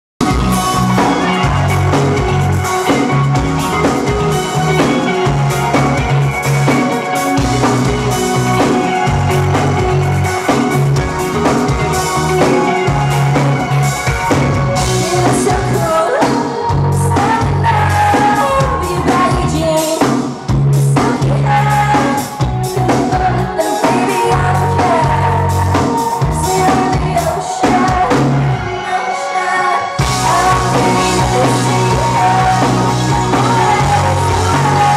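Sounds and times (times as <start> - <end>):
driving drum beat: 0.2 - 28.6, 30.0 - 34.9
electric guitars: 0.2 - 34.9
woman singing: 15.0 - 34.9.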